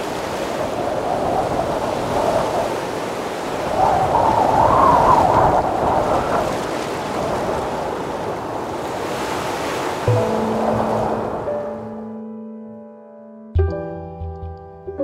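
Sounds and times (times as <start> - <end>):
waves washing on shore: 0.0 - 12.0
wind: 0.0 - 12.2
music with low thump: 13.6 - 15.0.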